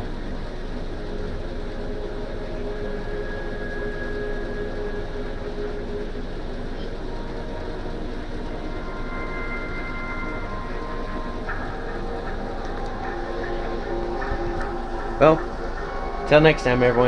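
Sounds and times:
faint held tone: 0.0s - 17.0s
mechanical hum: 0.0s - 17.0s.

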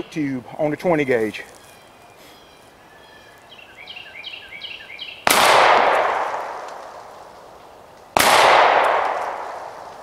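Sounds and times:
bird chirping: 0.0s - 5.3s
shotgun shot echoing: 5.2s - 6.8s, 8.2s - 9.9s.

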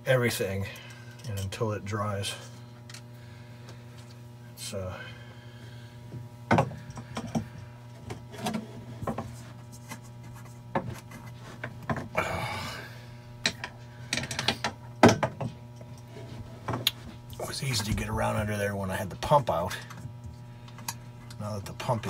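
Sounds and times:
steady low hum: 0.0s - 22.0s
scraping rub: 8.2s - 11.8s.

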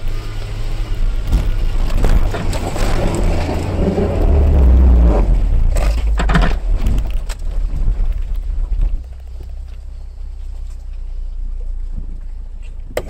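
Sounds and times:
tyres scrabbling on dirt: 0.0s - 11.1s
engine labouring under load: 0.0s - 12.3s
vehicle knocks and rattles: 1.2s - 4.2s, 5.6s - 9.6s.

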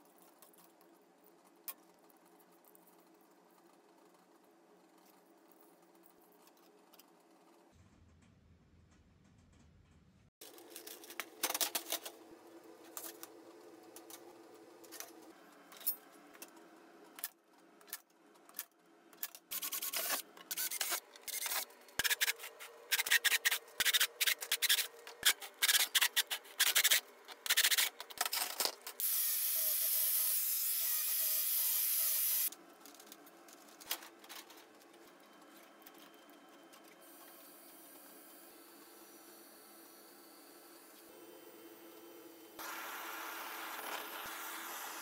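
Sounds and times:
drill cutting steel sheet: 29.0s - 32.5s.

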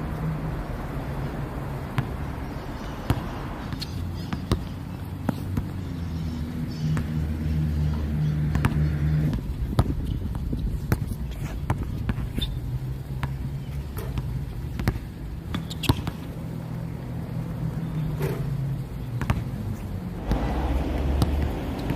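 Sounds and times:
vehicle engine hum: 0.0s - 21.9s
basketball bouncing on hard court: 3.0s - 5.7s, 8.5s - 12.6s, 13.2s - 16.4s, 19.2s - 19.6s, 20.2s - 21.9s.

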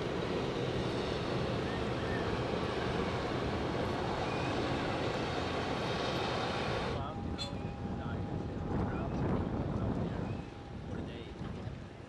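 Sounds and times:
wind on microphone: 6.5s - 12.0s.

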